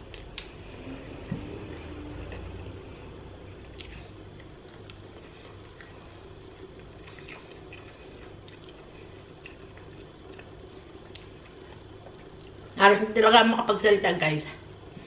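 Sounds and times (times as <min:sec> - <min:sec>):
steady low hum: 0:00.0 - 0:15.0
chewing and mouth smacks: 0:03.6 - 0:12.6.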